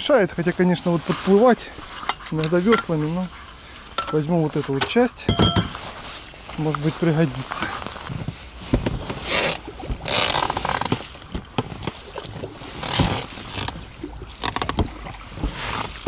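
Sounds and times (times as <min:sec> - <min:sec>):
gear scraping and rustling: 0:05.7 - 0:16.0.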